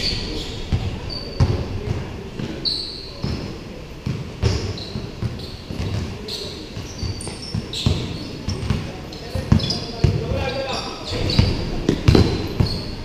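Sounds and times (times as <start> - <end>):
sneaker squeaks: 0.0 - 13.0
basketball bouncing on hard court: 0.7 - 2.5, 3.2 - 6.2, 6.8 - 10.5, 11.1 - 12.9.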